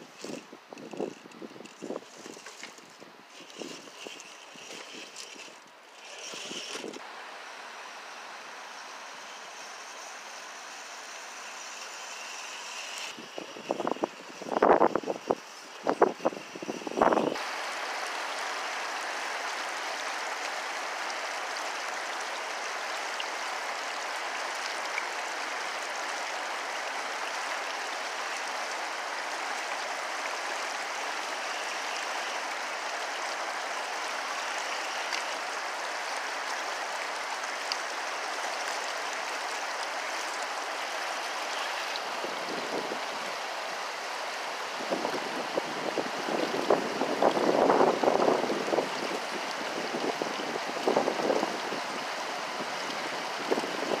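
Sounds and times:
water rushing over rocks: 0.0 - 54.0
wind buffeting microphone: 13.1 - 17.4.

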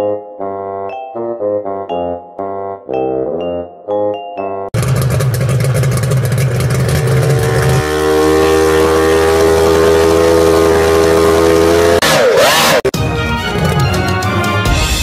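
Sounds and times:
small outboard engine running: 4.8 - 12.0.

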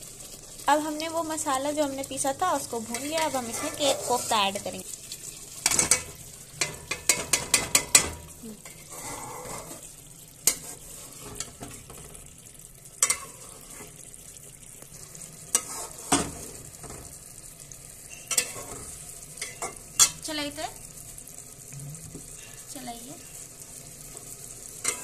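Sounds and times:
gravy sizzling: 0.0 - 25.0
spatula clinking on metal pot: 18.1 - 18.6.

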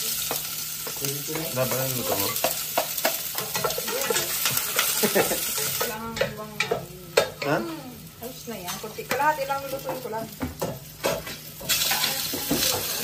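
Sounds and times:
food sizzling in a pot: 0.0 - 13.0
spatula knocking against pot: 2.2 - 5.3, 6.2 - 7.6, 8.7 - 12.9.

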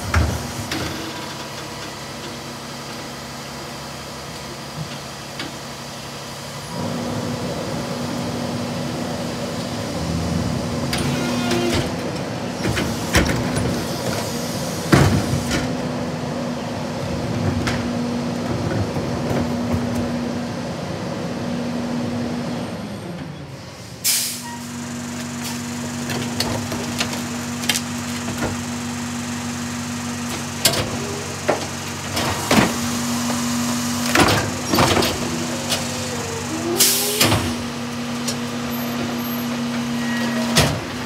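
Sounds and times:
garbage truck humming: 0.0 - 41.0
sharp air hiss: 23.9 - 24.8.

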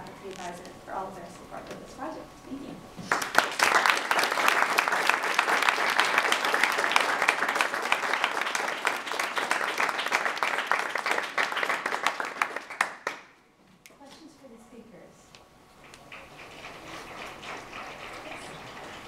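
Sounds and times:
audience clapping: 3.1 - 13.4.

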